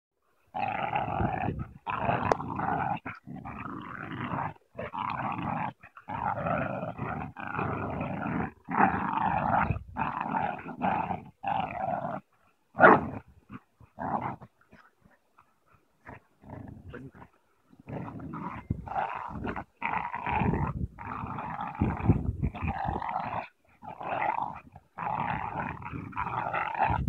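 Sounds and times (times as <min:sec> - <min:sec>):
dogs growling in play: 0:00.4 - 0:27.0.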